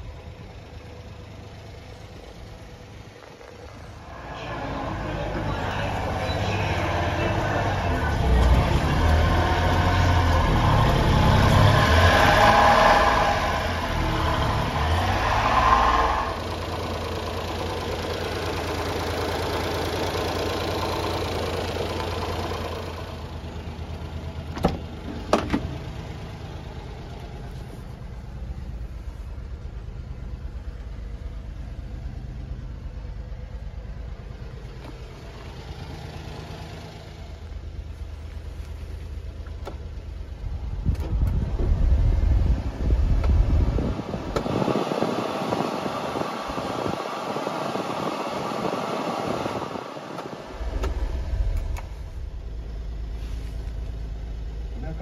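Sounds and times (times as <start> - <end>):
small truck engine idling: 0.0 - 11.7, 16.1 - 41.5, 49.9 - 55.0.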